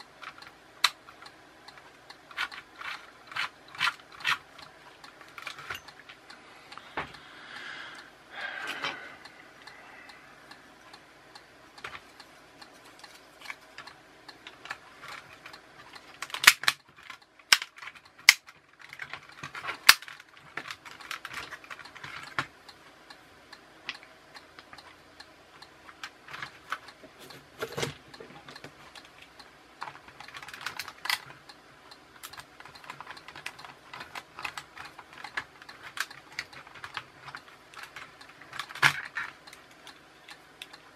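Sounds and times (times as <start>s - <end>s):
plastic parts clicking: 0.2s - 6.2s, 12.8s - 22.5s, 25.9s - 31.4s, 32.2s - 40.8s.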